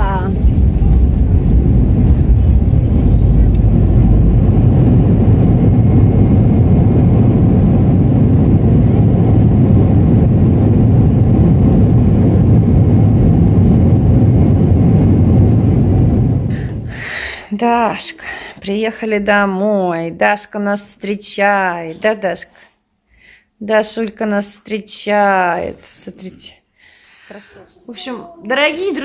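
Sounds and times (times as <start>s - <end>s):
airliner cabin low rumble: 0.0s - 17.4s.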